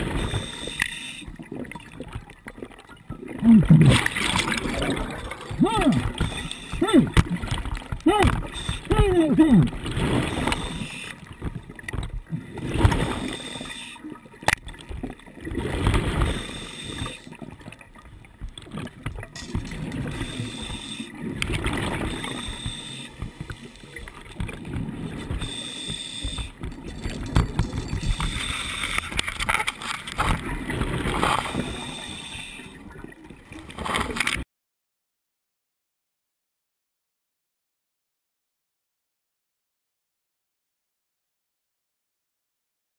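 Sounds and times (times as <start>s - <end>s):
underwater bubbles gurgling: 0.0s - 34.2s.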